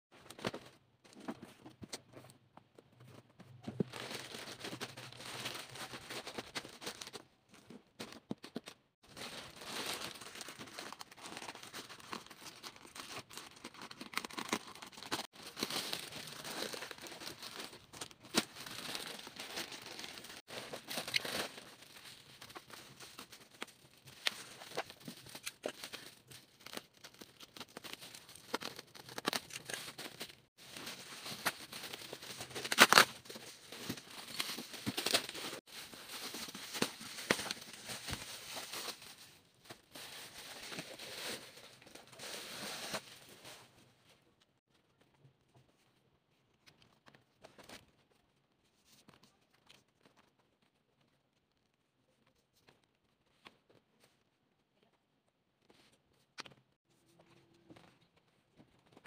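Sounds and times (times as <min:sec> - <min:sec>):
plastic and bubble wrap crinkling: 0:03.0 - 0:43.8.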